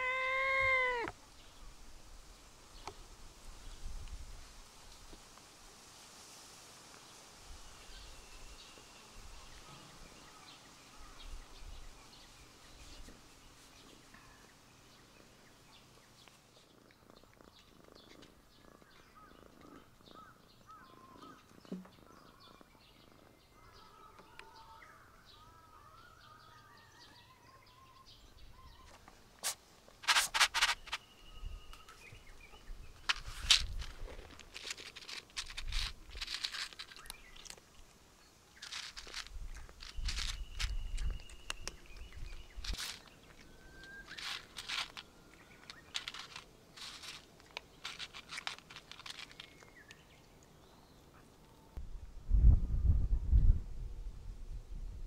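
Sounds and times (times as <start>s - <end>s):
faint birds chirping: 0.0s - 1.8s, 7.0s - 51.8s
dry cat food rattling onto plate: 29.4s - 31.0s, 33.0s - 37.6s, 38.6s - 43.2s, 43.9s - 50.0s.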